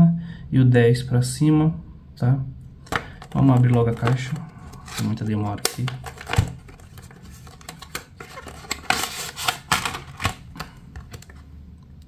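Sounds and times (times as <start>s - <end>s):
cardboard box being opened: 6.0s - 10.4s.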